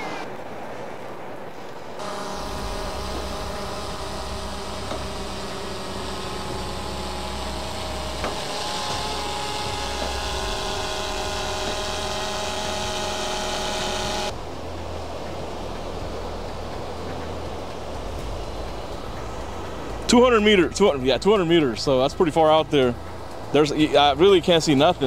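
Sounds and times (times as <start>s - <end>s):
drone propellers whining: 2.0s - 21.2s.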